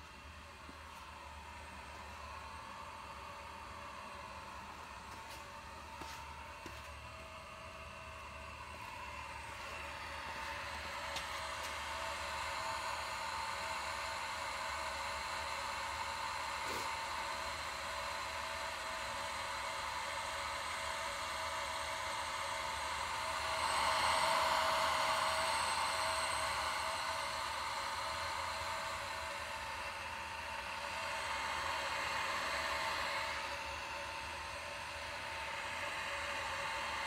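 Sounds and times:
vacuum pump whirring hiss: 0.0s - 37.0s.

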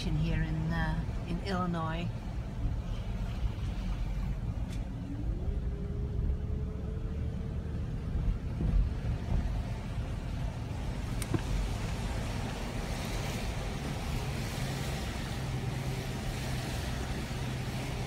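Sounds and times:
car driving on wet street: 0.0s - 18.0s
tyre noise on wet pavement: 7.2s - 18.0s.

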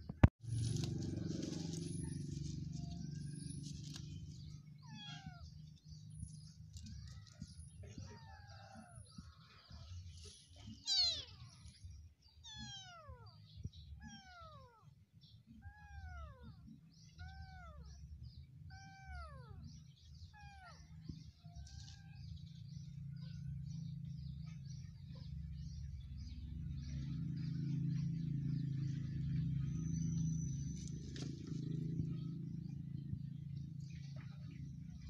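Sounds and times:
kitten mewing: 10.8s - 11.5s.

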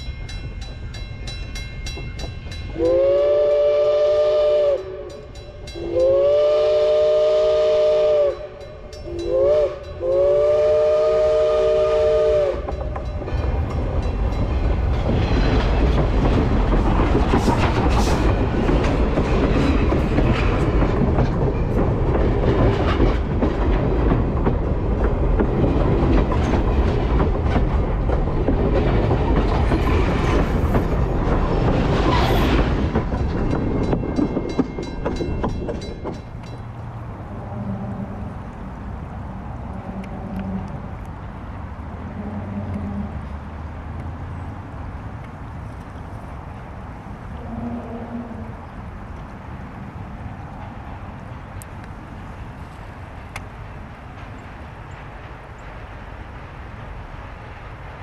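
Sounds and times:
train wheels rumbling on rail: 0.0s - 58.0s
steam locomotive whistle: 2.7s - 12.8s, 47.4s - 48.6s.

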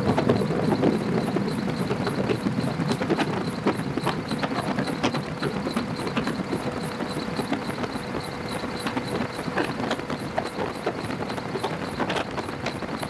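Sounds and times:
helicopter rotor and engine: 0.0s - 13.0s.

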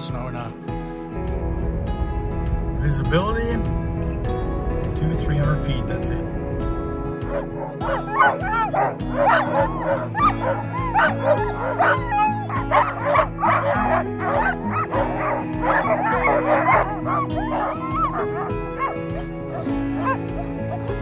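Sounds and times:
sled dogs barking and yipping: 7.1s - 21.0s.

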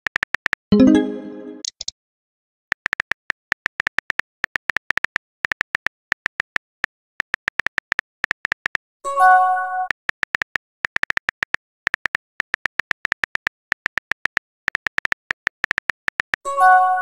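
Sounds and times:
phone keyboard taps: 2.8s - 8.8s, 10.2s - 16.4s.

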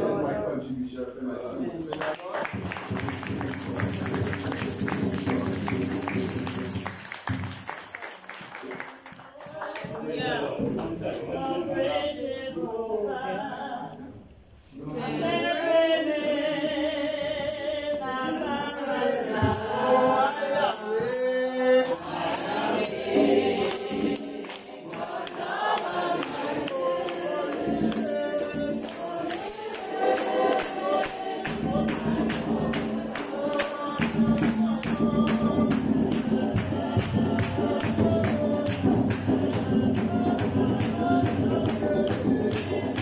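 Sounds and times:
tambourine beat: 2.2s - 11.0s, 16.0s - 43.0s
congregation singing a hymn: 2.4s - 8.7s, 9.4s - 43.0s.

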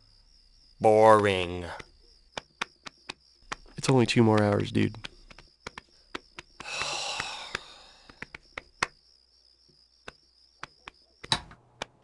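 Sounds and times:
person sighing: 6.6s - 8.2s.

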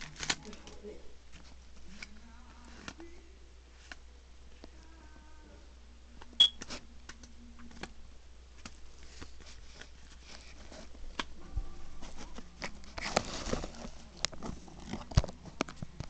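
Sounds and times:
trading cards clicking and rustling: 0.0s - 3.0s.

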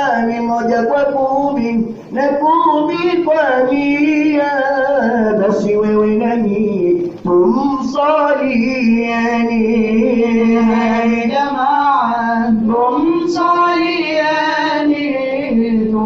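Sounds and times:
group singing in unison: 7.2s - 16.0s.

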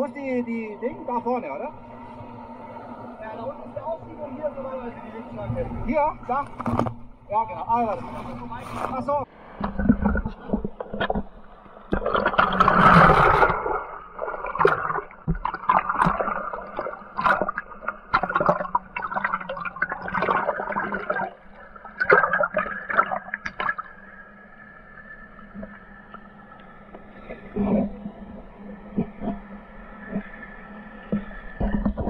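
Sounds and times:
whitewater splashing against kayak: 11.9s - 21.4s.

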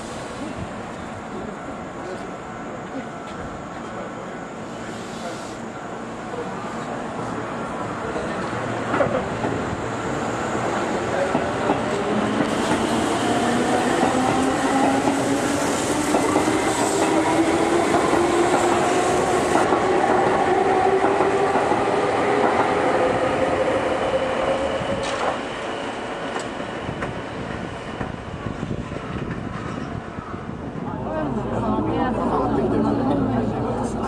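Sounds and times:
train wheels clattering on rails: 11.2s - 22.8s, 26.3s - 30.0s.

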